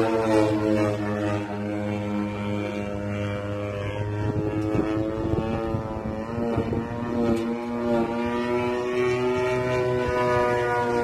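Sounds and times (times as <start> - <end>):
model airplane engine drone: 0.0 - 11.0.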